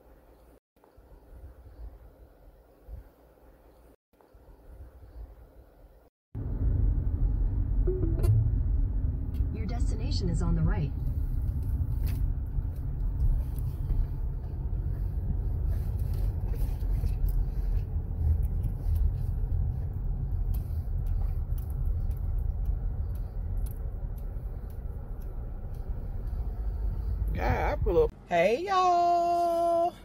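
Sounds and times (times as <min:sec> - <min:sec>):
car interior low rumble: 0:06.4 - 0:30.0.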